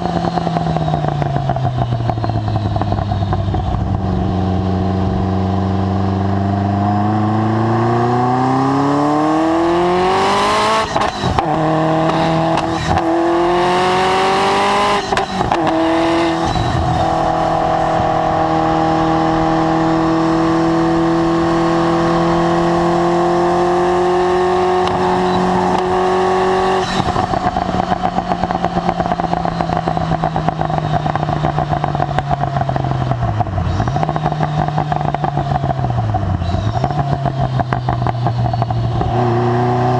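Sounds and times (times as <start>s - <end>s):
exhaust crackling on overrun: 0.0s - 39.9s
sports car engine accelerating: 0.0s - 39.9s.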